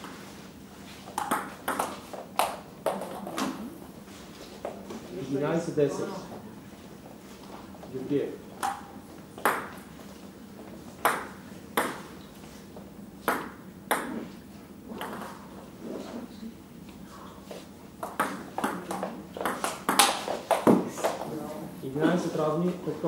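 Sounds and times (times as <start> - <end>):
ball striking paddles and table: 1.0 - 3.6, 8.5 - 10.0, 10.6 - 12.3, 13.2 - 15.6, 17.5 - 21.3
table tennis ball bouncing: 1.2 - 3.6, 8.6 - 9.8, 11.0 - 12.1, 13.2 - 14.2, 15.0 - 15.4, 18.0 - 21.2.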